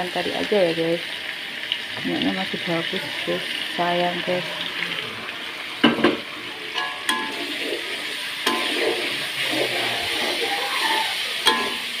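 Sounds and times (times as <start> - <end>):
sauce sizzling in a wok: 0.0 - 12.0
metal spatula clinking wok: 8.4 - 8.8, 11.4 - 12.0.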